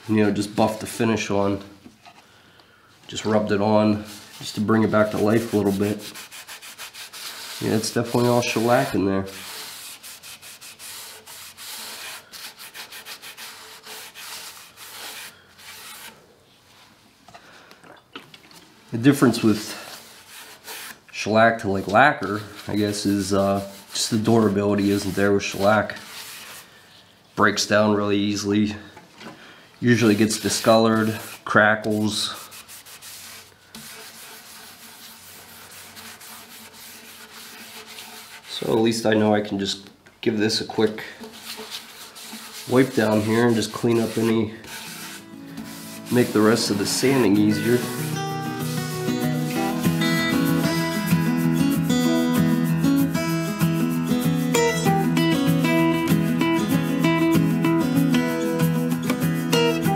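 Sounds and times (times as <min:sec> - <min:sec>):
cloth rubbing on wood: 0:03.2 - 0:16.9, 0:19.1 - 0:21.0, 0:21.8 - 0:26.7, 0:29.9 - 0:38.8, 0:41.2 - 0:54.9.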